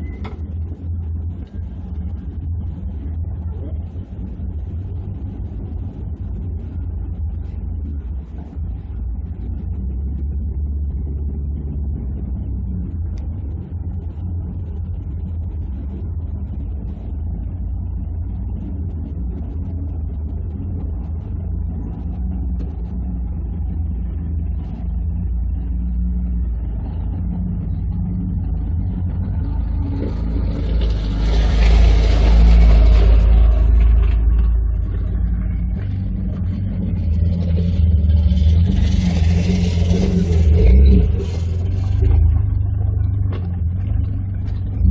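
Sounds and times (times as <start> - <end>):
engine idling: 0.0 - 44.9
vehicle driving past on gravel: 29.6 - 36.1.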